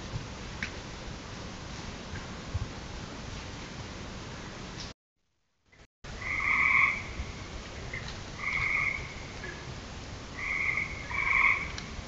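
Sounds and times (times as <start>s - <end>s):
frogs calling: 6.2s - 7.2s, 8.4s - 9.6s, 10.4s - 11.8s.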